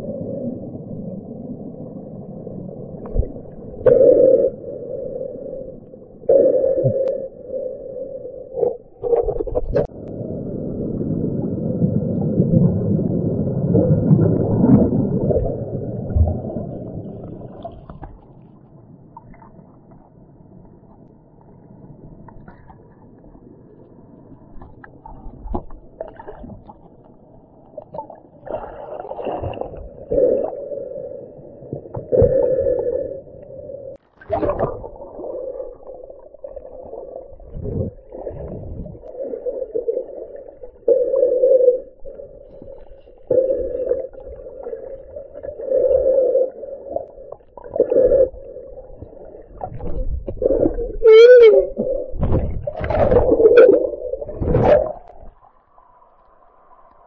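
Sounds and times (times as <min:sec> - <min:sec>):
muffled underwater stream churning: 0:00.0 - 0:57.0
rush of water: 0:34.0 - 0:41.0, 0:41.8 - 0:55.3.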